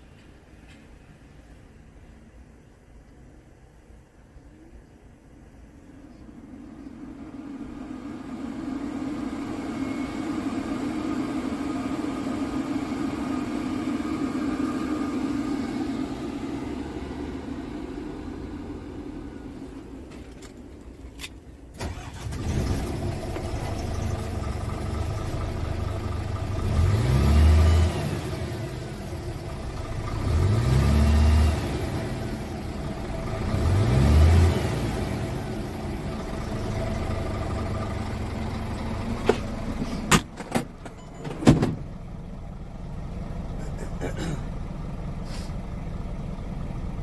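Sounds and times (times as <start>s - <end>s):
diesel truck engine idling: 5.1s - 47.0s
engine revs: 6.1s - 20.1s, 21.8s - 40.2s.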